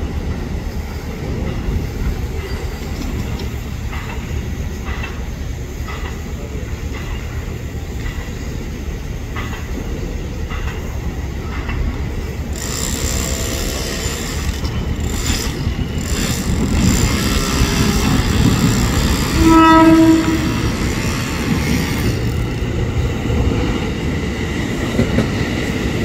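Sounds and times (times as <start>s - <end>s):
electric train rumbling: 0.0s - 26.0s
train horn blast: 19.2s - 21.1s.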